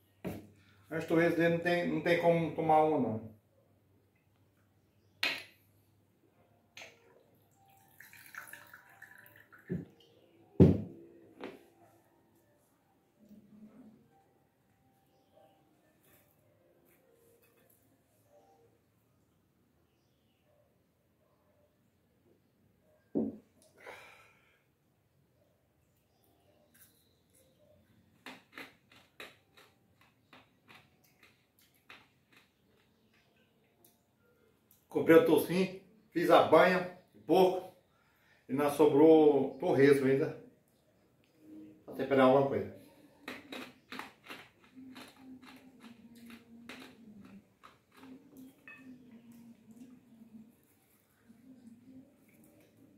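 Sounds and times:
bottle thudding on table: 10.6s - 11.0s, 23.2s - 23.4s
crunchy chewing: 26.7s - 34.0s, 42.8s - 52.9s.

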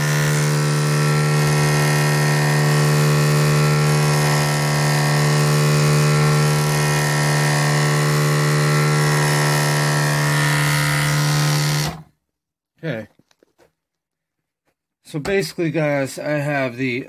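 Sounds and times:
electric motor humming: 0.0s - 12.1s.

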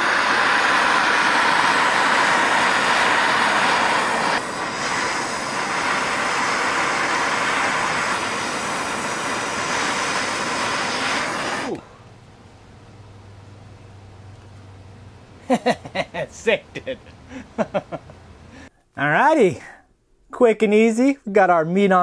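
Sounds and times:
gas torch flame hissing: 0.0s - 12.0s.

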